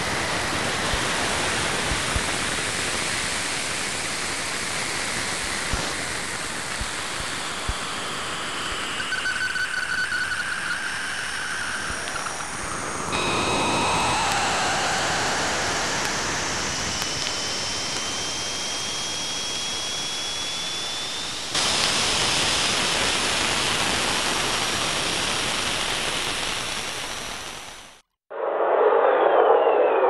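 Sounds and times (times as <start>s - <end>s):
faint whistling tone gliding upward: 8.7s - 21.5s, 28.3s - 30.0s
steady rushing hiss: 11.1s - 18.5s.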